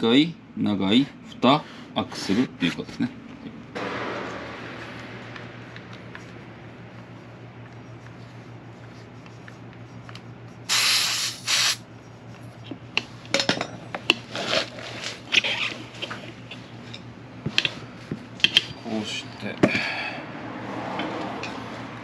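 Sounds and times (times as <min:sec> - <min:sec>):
air hissing out of tyre valve: 0:10.7 - 0:11.8.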